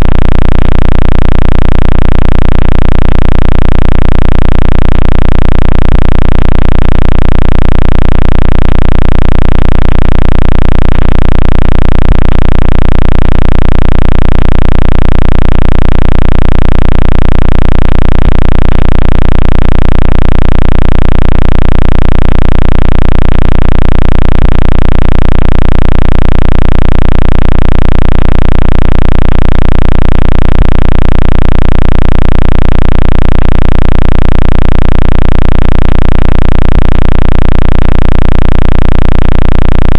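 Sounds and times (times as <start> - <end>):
pulsing deep low hum: 0.0 - 1.3.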